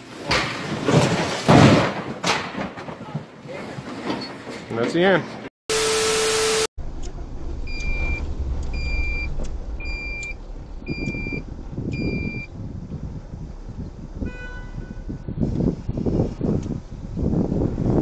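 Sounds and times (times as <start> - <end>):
engine and road rumble: 6.4 - 18.0
car horn toot: 14.2 - 15.1.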